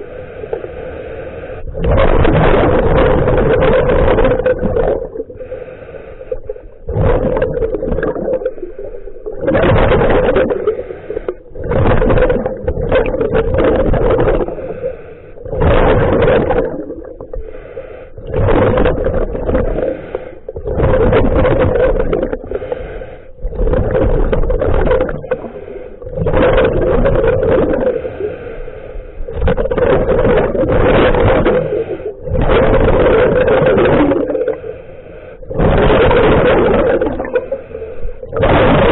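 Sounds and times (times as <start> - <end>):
bubbling exhalations underwater: 1.7 - 5.6, 6.3 - 17.6, 18.2 - 22.7, 23.4 - 28.2, 29.3 - 34.8, 35.4 - 38.9
hissing regulator inhalations: 5.4 - 6.8, 17.2 - 18.2, 22.4 - 23.5, 27.9 - 29.3, 31.6 - 32.3, 34.4 - 35.5.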